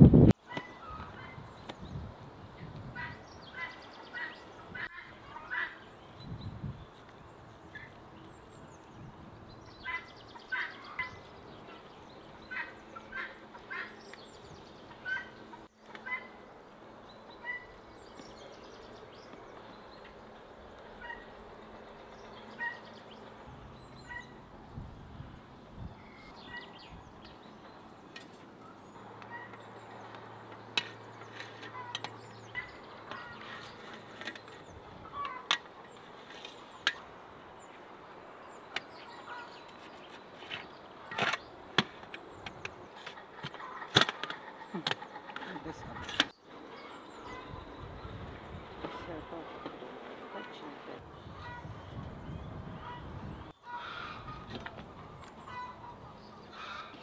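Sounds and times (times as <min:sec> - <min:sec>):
small birds chirping faintly: 0:00.4 - 0:57.0
poultry calling: 0:03.0 - 0:05.9, 0:09.8 - 0:14.1, 0:15.0 - 0:16.5, 0:17.3 - 0:17.8, 0:20.8 - 0:21.5, 0:22.3 - 0:23.1, 0:24.0 - 0:24.4, 0:29.1 - 0:29.7, 0:31.3 - 0:34.0, 0:35.0 - 0:35.6, 0:52.8 - 0:57.0.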